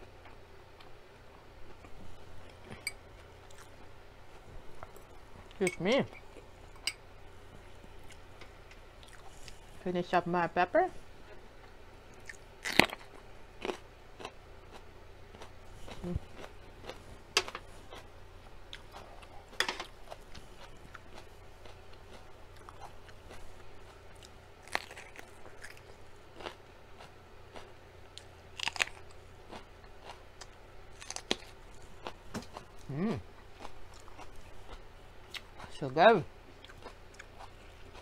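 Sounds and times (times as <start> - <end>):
chewing: 1.7 - 3.9, 9.0 - 9.7, 12.1 - 18.1, 18.7 - 35.7, 36.5 - 38.0.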